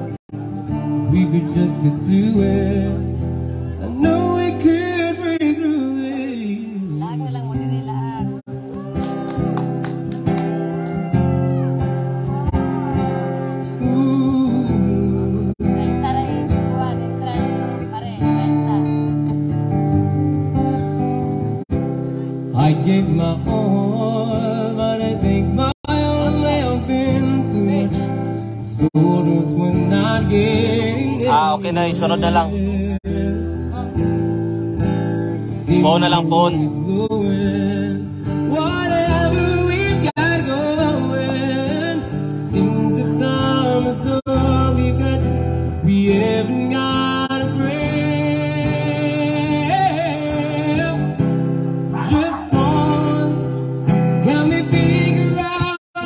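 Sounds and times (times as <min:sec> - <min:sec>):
man singing through pa: 0:00.0 - 0:07.4, 0:12.3 - 0:15.8, 0:22.5 - 0:34.3, 0:35.4 - 0:56.0
acoustic guitar: 0:00.0 - 0:56.0.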